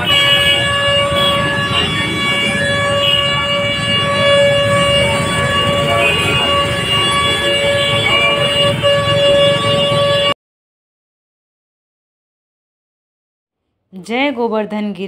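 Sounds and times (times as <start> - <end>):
crowd noise: 0.0 - 10.3
street traffic: 0.0 - 10.4
vehicle horn long note: 0.0 - 10.4.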